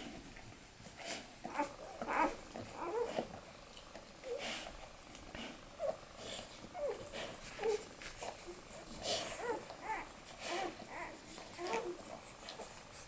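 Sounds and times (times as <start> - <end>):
puppies squeaking and grunting: 1.0 - 3.6, 5.4 - 13.0.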